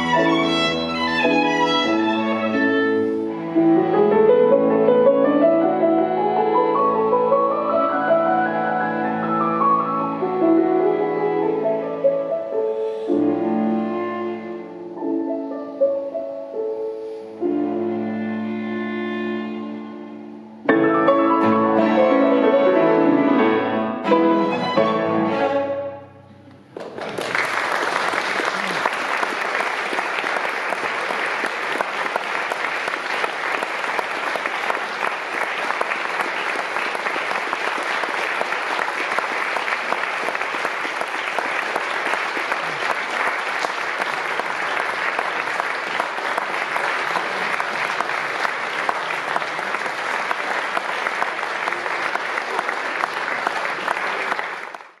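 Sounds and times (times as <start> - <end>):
audience applauding: 0.0 - 2.8, 26.6 - 55.0.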